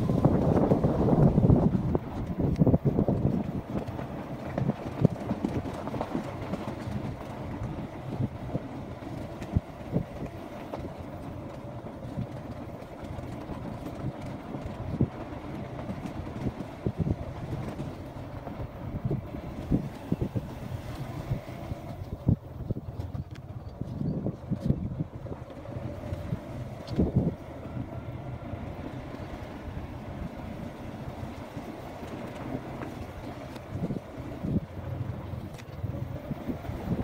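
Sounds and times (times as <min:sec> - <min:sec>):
knocks and rattles from bumps: 0:00.3 - 0:27.4.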